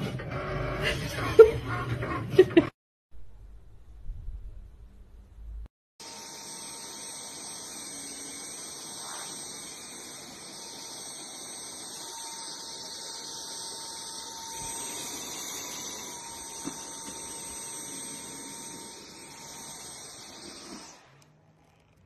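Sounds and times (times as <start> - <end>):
vacuum cleaner running: 6.0 - 21.3.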